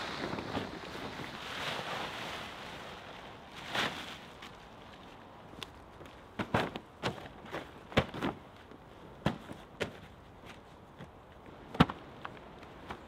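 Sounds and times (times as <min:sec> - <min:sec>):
wooden knocks of logs handled: 0:06.0 - 0:08.5, 0:09.2 - 0:13.0.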